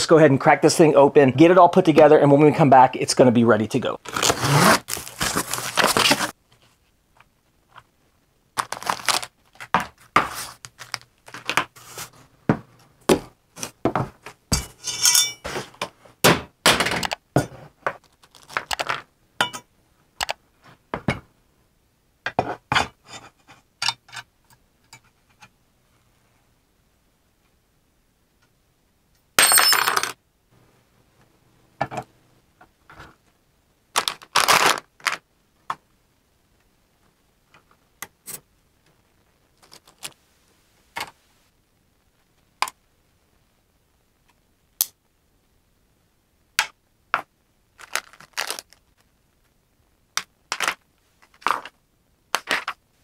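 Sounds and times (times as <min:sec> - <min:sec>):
metal parts and tools clinking: 0:14.5 - 0:15.7.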